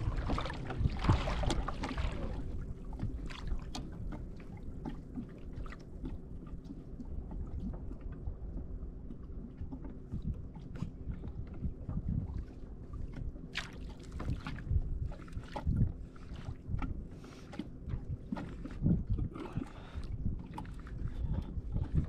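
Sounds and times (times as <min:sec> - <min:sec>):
wind noise: 0:00.0 - 0:02.4, 0:18.7 - 0:22.0
rushing water: 0:00.0 - 0:02.6
water sloshing: 0:00.0 - 0:22.0.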